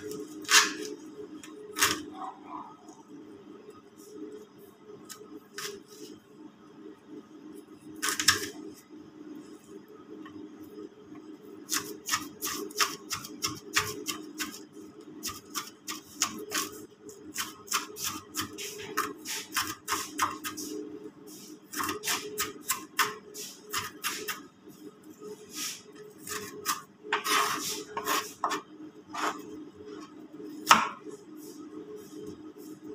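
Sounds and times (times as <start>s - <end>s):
knife chopping on cutting board: 30.6s - 31.1s.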